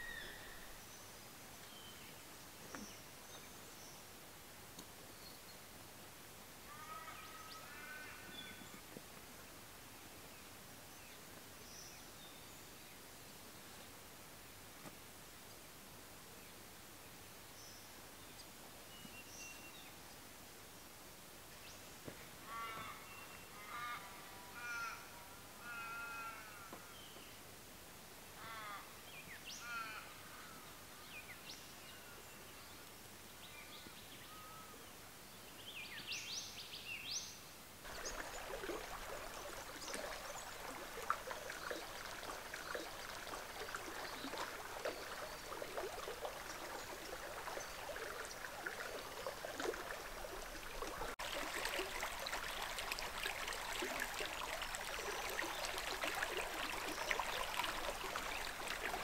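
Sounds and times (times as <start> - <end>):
birds calling: 37.9 - 59.0
river flowing over rocks: 37.9 - 59.0.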